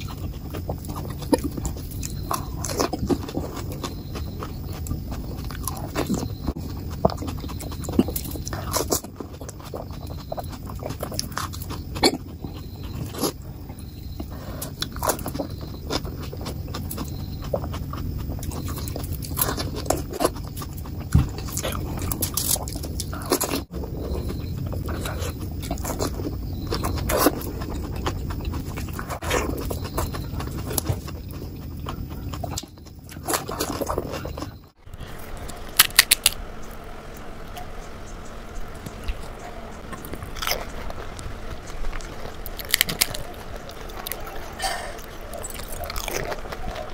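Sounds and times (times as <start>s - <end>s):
wet chewing: 0.0s - 46.9s
crisp shells crunching: 35.2s - 36.4s, 39.8s - 46.9s.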